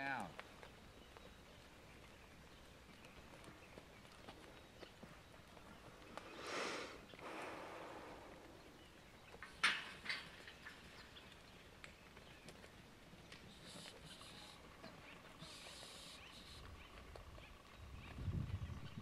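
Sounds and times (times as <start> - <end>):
faint outdoor noise: 0.0 - 19.0
soft hissing: 6.3 - 8.5, 13.5 - 14.6, 15.4 - 16.7.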